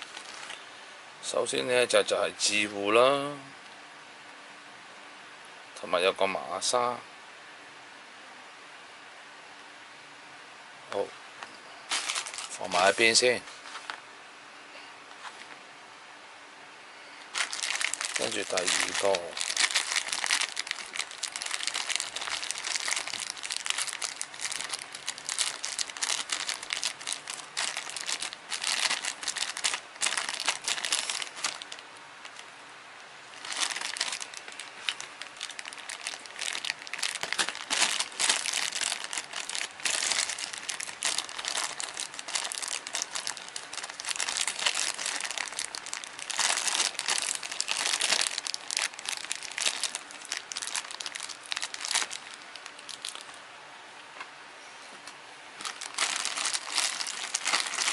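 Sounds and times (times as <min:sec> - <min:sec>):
plastic bag crinkling: 0:00.0 - 0:00.7, 0:11.9 - 0:13.4, 0:17.3 - 0:32.5, 0:33.2 - 0:53.4, 0:55.6 - 0:57.9.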